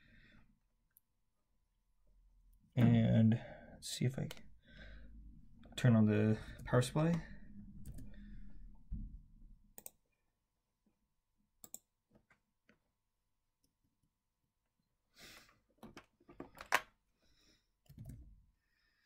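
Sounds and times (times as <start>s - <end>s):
low hum: 2.8s - 9.9s.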